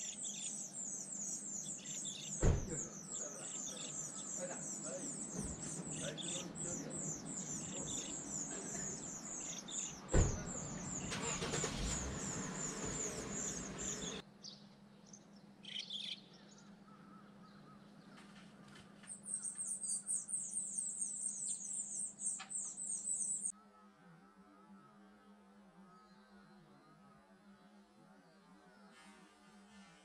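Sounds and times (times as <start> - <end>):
nestling birds begging chirps: 0.0 - 23.5
thump: 2.4 - 2.9, 5.4 - 5.9, 10.1 - 10.5.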